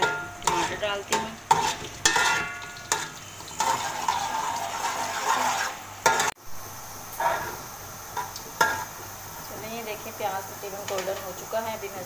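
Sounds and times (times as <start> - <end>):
metal spatula scraping pot: 0.0 - 6.4, 7.2 - 7.6
onions sizzling in oil: 0.0 - 12.0.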